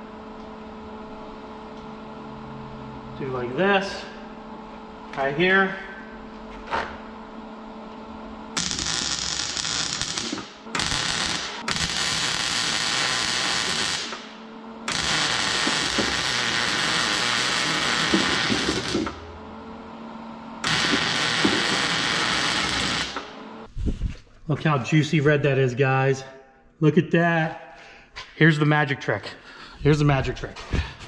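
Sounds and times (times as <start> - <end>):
welder arcing: 8.6 - 19.3, 20.6 - 23.5.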